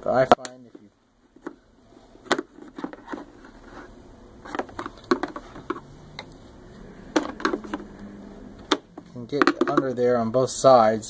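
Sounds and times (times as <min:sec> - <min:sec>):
screwdrivers scraping hard plastic: 0:02.3 - 0:05.9.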